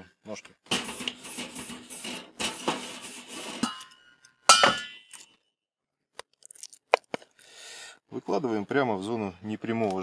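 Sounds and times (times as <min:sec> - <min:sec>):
grill brush scraping metal grate: 0:00.7 - 0:03.9
loud metallic clink: 0:03.6 - 0:05.1.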